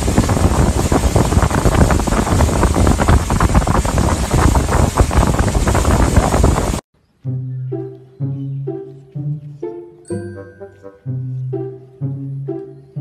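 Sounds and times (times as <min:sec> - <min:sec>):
wind buffeting microphone: 0:00.0 - 0:06.8.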